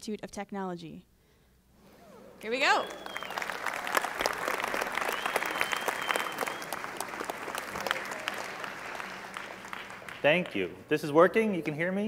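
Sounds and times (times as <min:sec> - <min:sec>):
audience applauding: 0:02.6 - 0:10.8.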